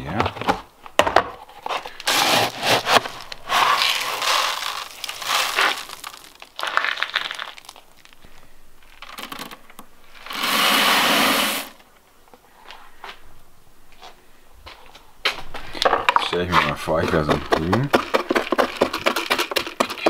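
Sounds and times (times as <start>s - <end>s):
pellets pouring into wooden hopper: 2.0s - 8.2s, 8.9s - 11.8s
scoop digging in feed pellets: 2.0s - 8.2s, 10.2s - 11.8s.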